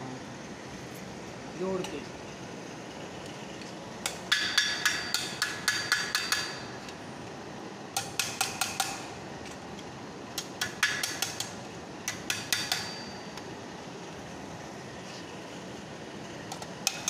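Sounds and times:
hammer striking metal with ringing: 4.3s - 6.7s, 8.0s - 9.1s, 12.1s - 13.3s.

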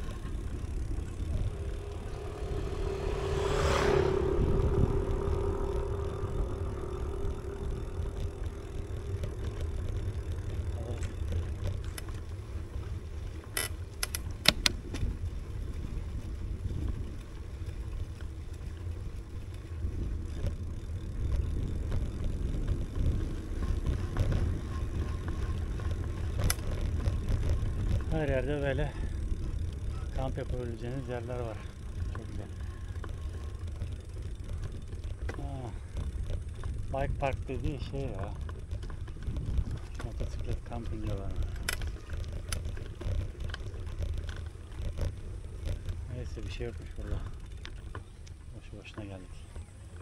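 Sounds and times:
vehicle passing by: 0.0s - 13.4s
steady low rumble: 0.0s - 50.0s.

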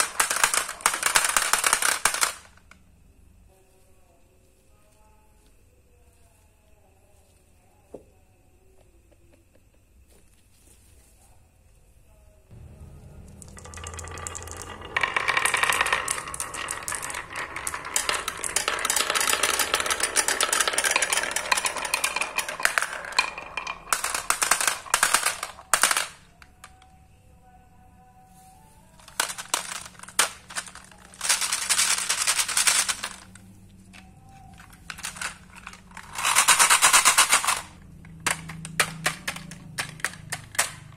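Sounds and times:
marbles rattling down wooden track: 0.0s - 2.8s, 12.6s - 26.9s, 29.0s - 40.9s.

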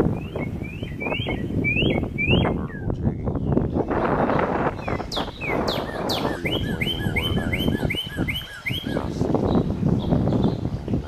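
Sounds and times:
bird chirp sound effect: 4.8s - 9.1s.

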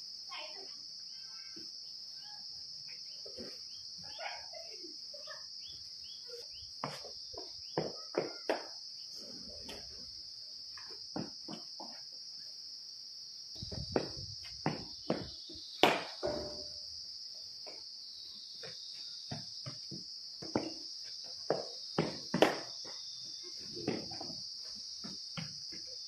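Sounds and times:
high-pitched insect drone: 0.0s - 26.0s
short thuds and knocks: 13.6s - 16.8s.

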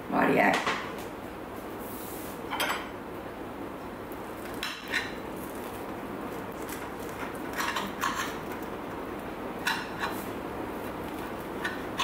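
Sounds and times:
knife cutting crusty bread: 4.4s - 8.7s
knife scraping and clinking on plate: 7.5s - 8.4s.

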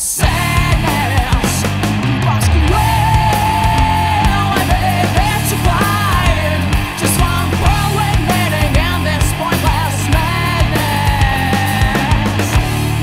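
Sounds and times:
heavy metal band playing: 0.0s - 13.0s
high held guitar note: 1.7s - 6.7s.

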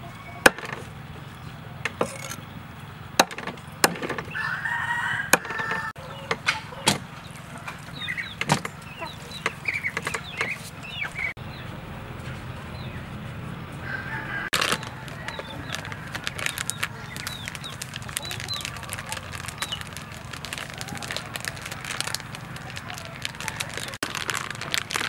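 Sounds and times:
chickens clucking and cheeping: 0.0s - 24.7s
rooster crowing: 4.3s - 6.9s, 13.8s - 16.4s.

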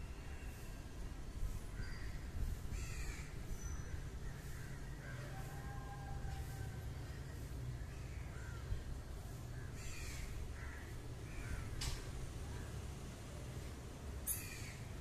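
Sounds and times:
crows cawing: 1.8s - 3.4s, 9.6s - 12.7s.

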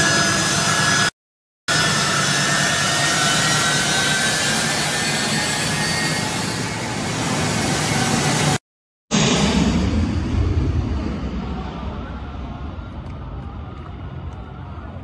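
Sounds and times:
jet engine roar and whine: 0.0s - 15.0s.

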